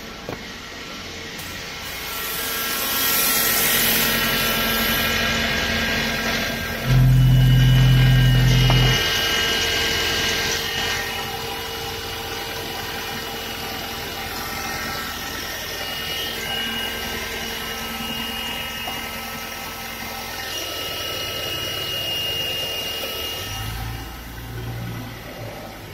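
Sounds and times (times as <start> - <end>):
faint constant whine: 5.3 - 25.9.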